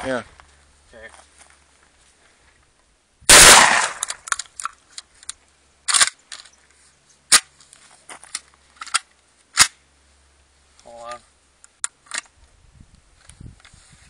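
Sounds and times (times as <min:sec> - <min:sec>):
rapid shotgun burst: 0:03.3 - 0:04.1
sharp gunshot cracks: 0:03.3 - 0:04.2.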